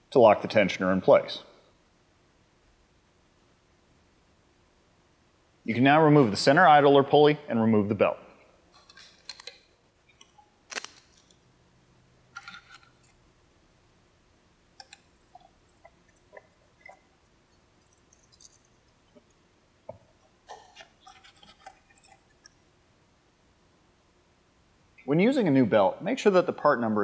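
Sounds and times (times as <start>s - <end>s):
metallic clicks of tools and parts: 8.7s - 11.4s.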